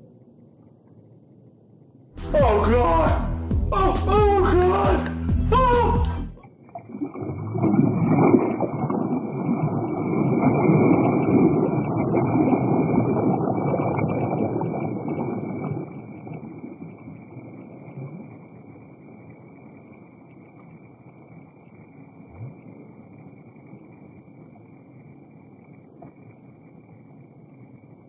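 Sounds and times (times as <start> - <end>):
water sloshing and splashing: 6.4 - 18.8.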